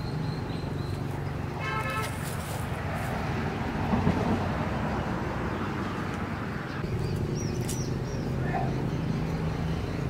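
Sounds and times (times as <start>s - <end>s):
bird chirps: 0.0s - 1.4s, 6.7s - 10.0s.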